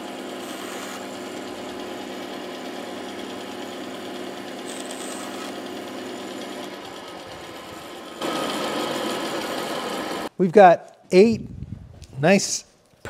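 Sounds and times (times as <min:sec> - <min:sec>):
bandsaw running: 0:00.0 - 0:10.3.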